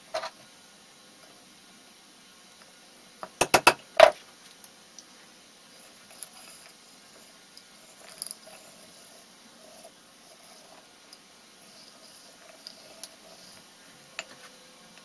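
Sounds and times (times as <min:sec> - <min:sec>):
hammer tapping screwdriver: 0:03.4 - 0:03.8
marker scratching on wood: 0:11.6 - 0:13.7.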